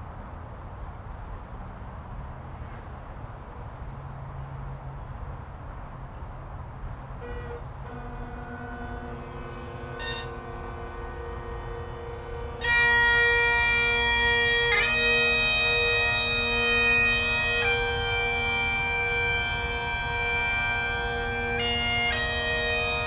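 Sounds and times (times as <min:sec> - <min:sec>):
bagpipe drones: 0:07.2 - 0:23.0
bagpipe chanter playing slow tune: 0:07.5 - 0:23.0.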